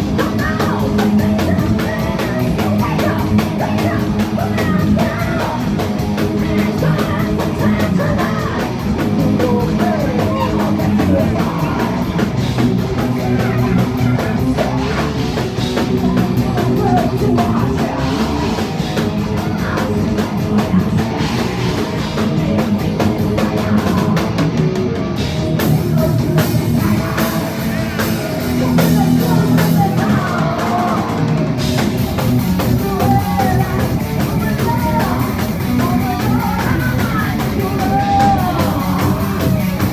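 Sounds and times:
woman singing: 0.0s - 24.4s, 25.6s - 31.2s, 32.6s - 39.9s
bass guitar: 0.0s - 39.9s
distorted electric guitars: 0.0s - 39.9s
fast driving drums: 0.0s - 39.9s.

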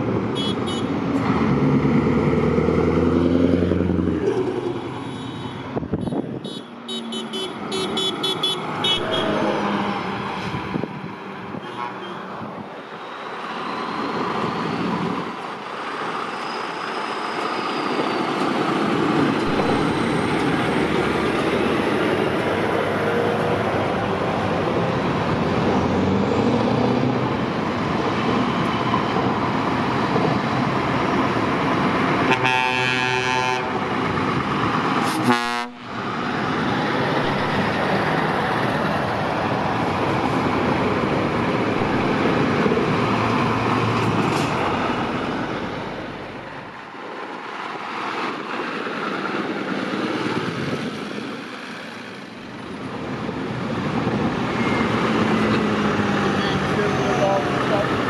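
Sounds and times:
heavy trucks driving past: 0.0s - 58.0s
truck horn blasts: 0.4s - 0.9s, 5.1s - 9.6s, 11.6s - 12.2s, 32.3s - 33.8s, 35.1s - 35.9s.

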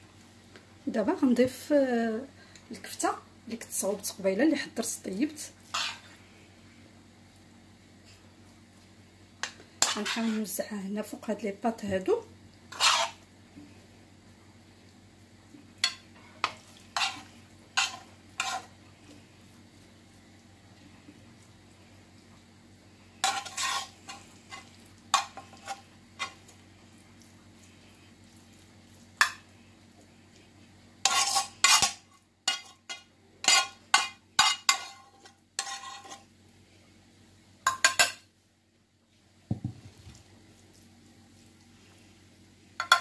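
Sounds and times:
faint low hum: 0.0s - 43.0s
metal spoon scraping frying pan: 5.7s - 6.1s, 9.8s - 10.6s, 12.7s - 13.2s, 15.8s - 18.7s, 23.2s - 26.4s, 31.0s - 36.3s.

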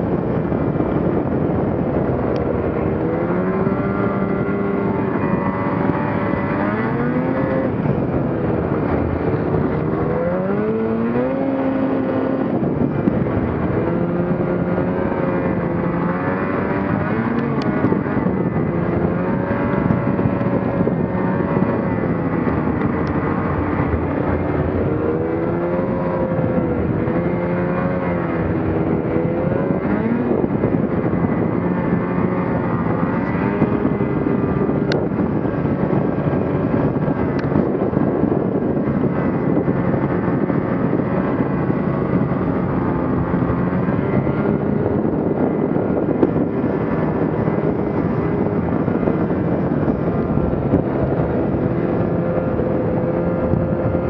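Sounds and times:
snowmobile engine revving: 0.0s - 54.0s.

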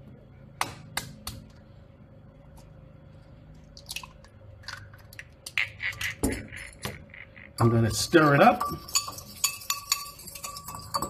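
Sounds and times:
eggs cracking: 3.8s - 7.6s.

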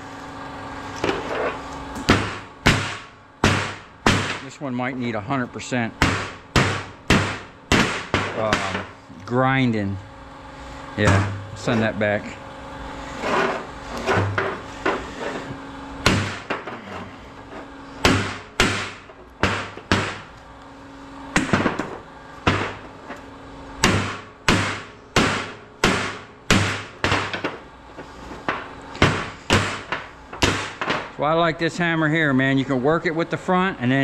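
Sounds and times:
hammer striking scrap: 13.0s - 20.3s.

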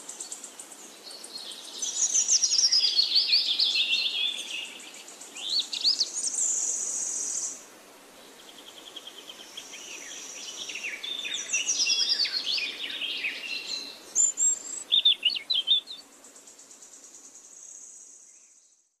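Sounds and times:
songbirds chirping and trilling: 0.0s - 19.0s.

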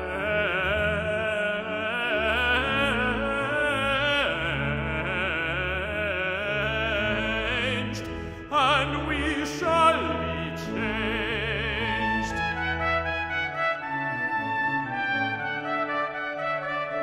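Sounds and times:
man singing with vibrato: 0.0s - 13.9s
low sustained organ notes: 0.0s - 17.0s.

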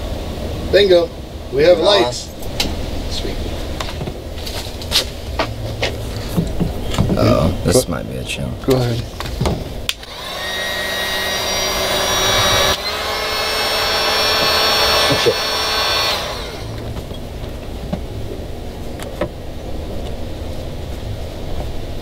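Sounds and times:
electric drill running: 10.0s - 16.9s.

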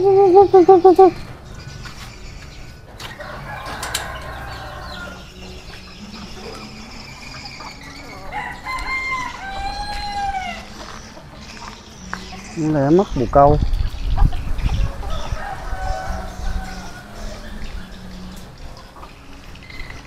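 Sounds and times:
chickens calling: 0.0s - 20.0s
rooster crowing: 3.2s - 5.2s, 8.2s - 10.7s, 15.0s - 17.6s.

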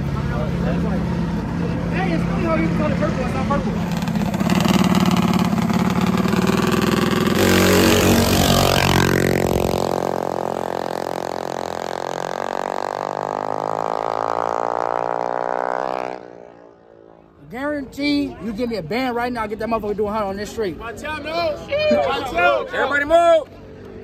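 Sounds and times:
minibike engine running: 3.2s - 14.2s.

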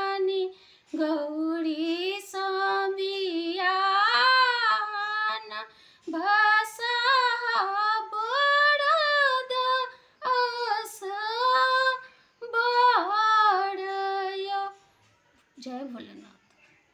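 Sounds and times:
woman singing unaccompanied: 0.0s - 16.5s
short breaths: 0.5s - 0.9s, 5.7s - 6.1s, 12.0s - 12.4s.

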